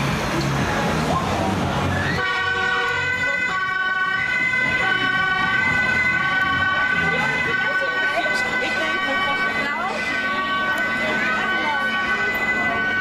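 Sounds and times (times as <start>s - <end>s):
street and crowd noise: 0.0s - 13.0s
emergency vehicle siren: 1.1s - 13.0s.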